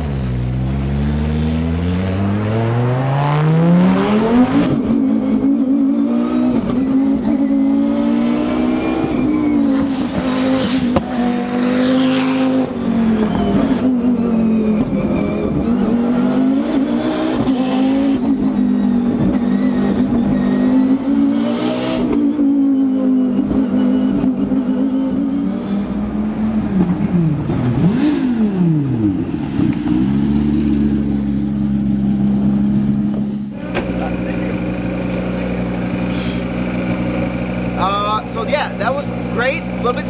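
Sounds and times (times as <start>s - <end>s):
race car engine revving hard: 0.0s - 40.0s.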